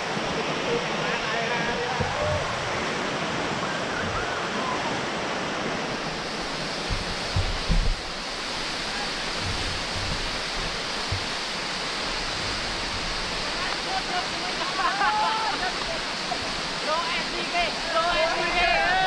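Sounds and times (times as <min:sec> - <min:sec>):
waterfall rushing: 0:00.0 - 0:19.0
low thumps: 0:06.8 - 0:08.2.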